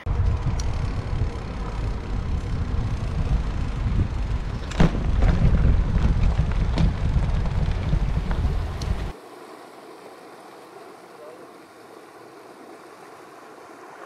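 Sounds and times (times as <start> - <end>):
wind buffeting microphone: 0.0 - 9.2
rolling tyre noise: 0.0 - 14.0
sharp clicks from bike: 0.1 - 9.2.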